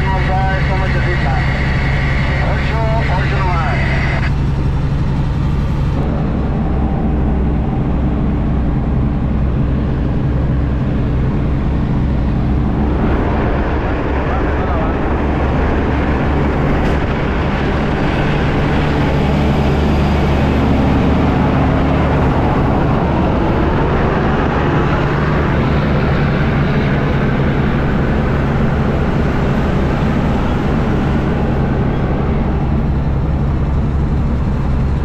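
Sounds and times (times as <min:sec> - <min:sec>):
road noise: 0:00.0 - 0:35.0
truck engine drone: 0:00.0 - 0:35.0.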